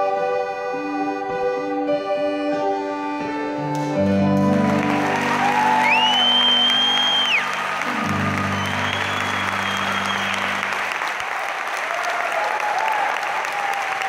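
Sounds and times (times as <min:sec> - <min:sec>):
accordion and band chords: 0:00.0 - 0:10.9
audience applause: 0:04.3 - 0:14.0
cheering whistle: 0:04.6 - 0:14.0.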